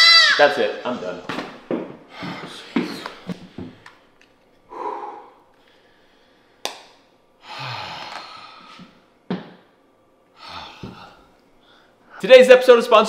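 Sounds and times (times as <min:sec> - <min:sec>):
man sighing heavily: 0:04.7 - 0:05.4, 0:07.4 - 0:08.8.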